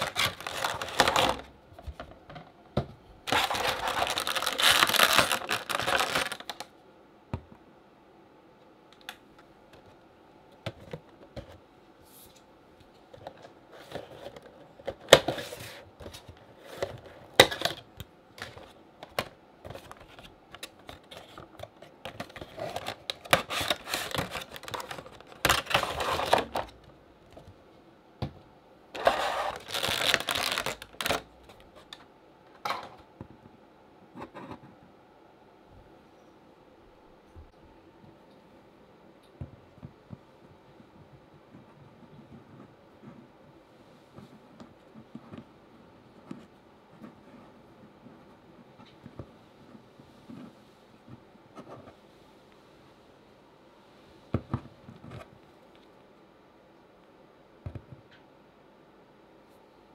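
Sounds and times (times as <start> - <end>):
plastic and cardboard crinkling: 0.0 - 6.7, 13.1 - 27.6, 29.0 - 33.0.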